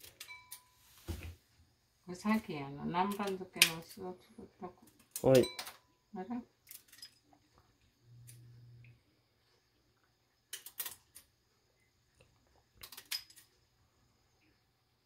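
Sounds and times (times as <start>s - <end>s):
kitchen items clicking: 12.8s - 13.6s.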